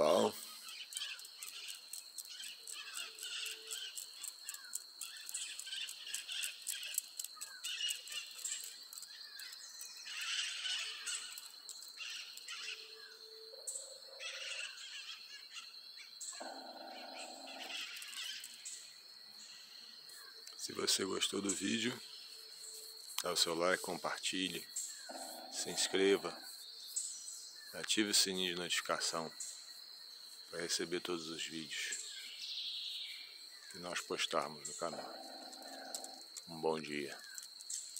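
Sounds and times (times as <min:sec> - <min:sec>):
forest birds chirping: 0:00.0 - 0:37.9
woodpecker: 0:00.0 - 0:37.9
constant high-pitched tone: 0:16.1 - 0:32.4.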